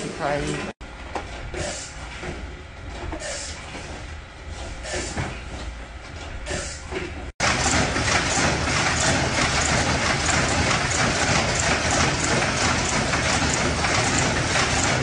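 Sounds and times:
packing machine clattering: 7.4s - 15.0s.

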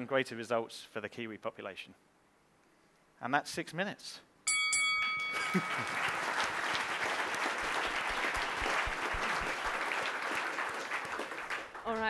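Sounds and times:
chime ringing: 4.5s - 6.5s
audience applauding: 5.2s - 12.0s.

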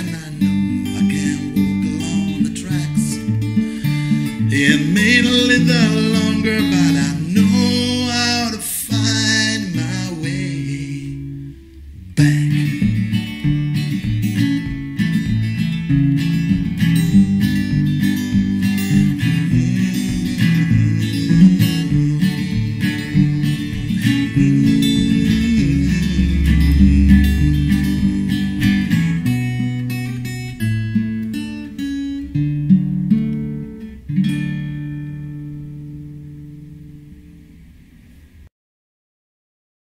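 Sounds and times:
man singing: 0.0s - 3.4s, 4.4s - 13.2s, 18.9s - 29.6s
acoustic guitar strumming: 0.0s - 38.4s.

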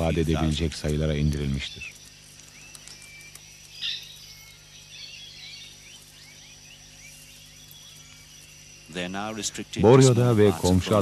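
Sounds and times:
high insect buzz: 0.0s - 11.0s
bird chirps and whistles: 2.5s - 9.2s.

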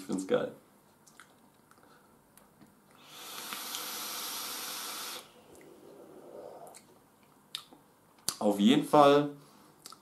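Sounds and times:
e-cigarette hiss: 3.0s - 6.8s
breathy exhale: 3.0s - 7.0s.

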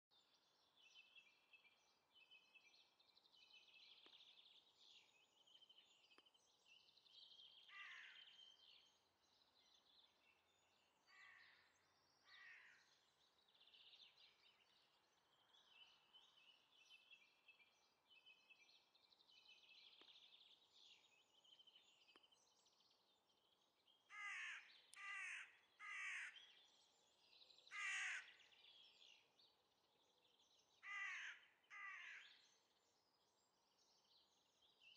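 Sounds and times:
small birds twittering: 0.1s - 34.9s
loud bird calls: 24.1s - 26.6s, 27.7s - 28.8s, 30.8s - 32.5s.

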